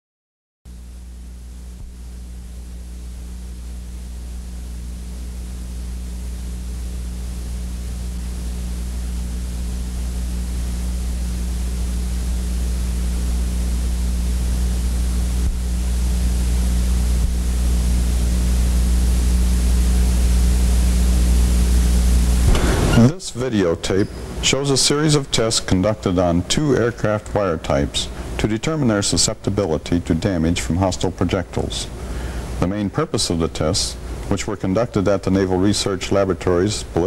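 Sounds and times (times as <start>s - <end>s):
electrical hum with hiss: 0.7s - 37.0s.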